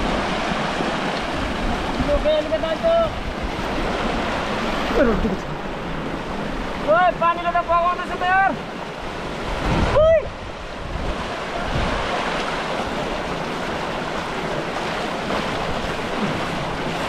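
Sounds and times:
water rushing over rocks: 0:00.0 - 0:17.0
person exclaiming: 0:09.9 - 0:10.4.

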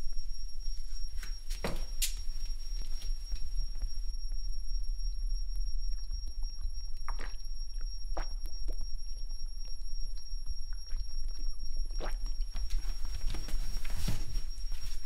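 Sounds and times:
steady low hum: 0:00.0 - 0:15.0
man gulping liquor: 0:07.0 - 0:08.8.

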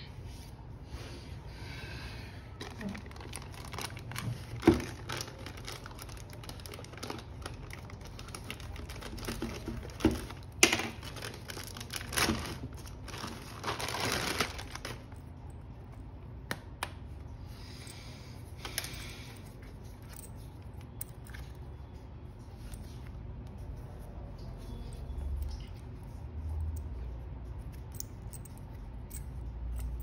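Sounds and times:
packaging crinkling and tearing: 0:02.6 - 0:15.2.

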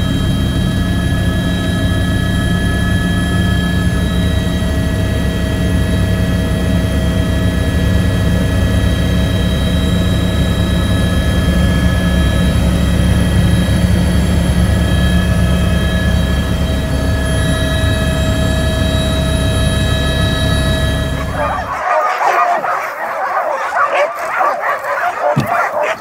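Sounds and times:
helicopter rotor and engine drone: 0:00.0 - 0:26.0
steady whining tones: 0:11.0 - 0:26.0.

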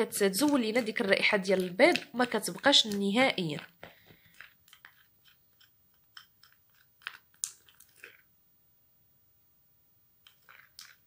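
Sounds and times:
spoon stirring thick paste: 0:00.0 - 0:08.3.

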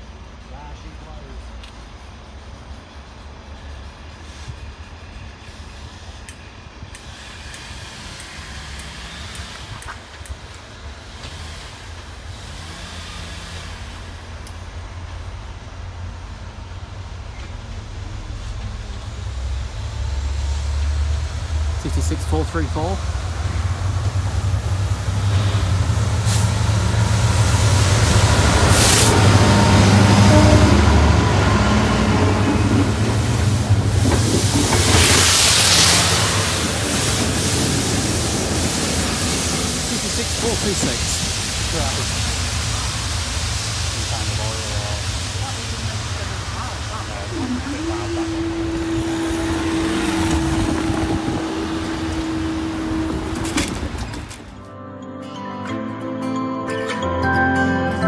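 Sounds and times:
diesel locomotive passing: 0:00.0 - 0:54.7
short air hisses: 0:25.3 - 0:26.8, 0:28.6 - 0:29.4.

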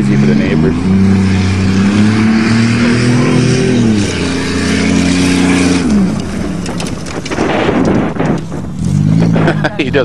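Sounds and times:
car engine at full throttle: 0:00.0 - 0:10.0
tyres on dirt: 0:00.0 - 0:10.0
stones ticking: 0:05.8 - 0:09.5.

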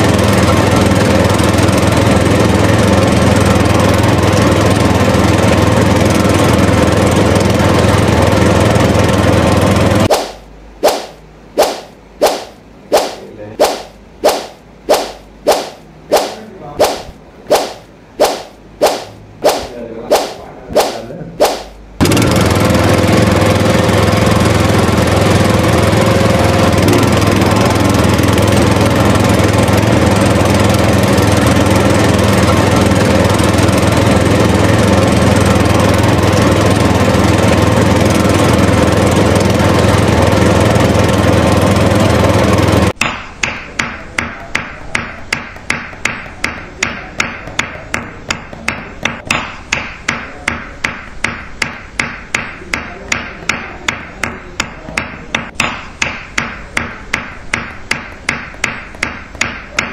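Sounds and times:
tractor engine running: 0:00.0 - 0:10.1, 0:22.0 - 0:43.0.

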